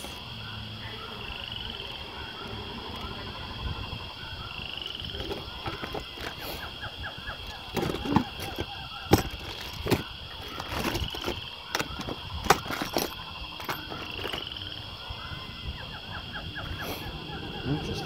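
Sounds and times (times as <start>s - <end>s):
plastic parts clattering in a bin: 5.2s - 6.7s, 7.4s - 14.6s.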